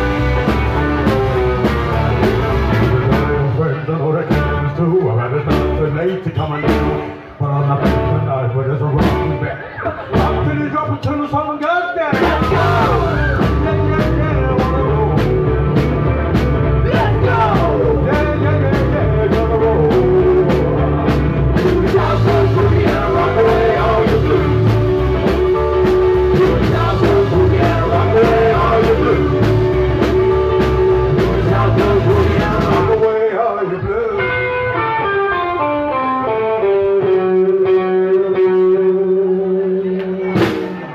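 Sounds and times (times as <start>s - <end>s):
rock and roll band playing: 0.0s - 40.9s
man singing: 2.7s - 15.9s, 16.8s - 34.8s.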